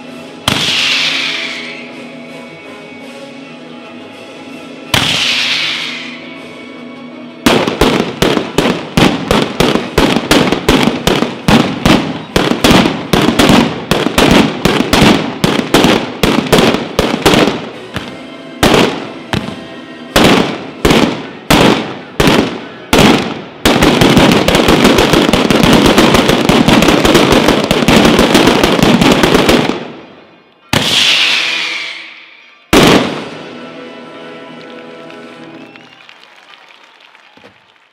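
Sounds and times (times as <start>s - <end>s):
continuous firecracker crackling: 0.4s - 1.8s, 5.0s - 6.2s, 7.4s - 33.8s, 34.4s - 37.9s
firecracker bangs: 0.4s - 1.8s, 4.9s - 6.2s, 7.4s - 30.1s, 30.7s - 33.7s
heavy blasts: 0.4s - 1.9s, 4.9s - 6.2s, 7.4s - 33.8s.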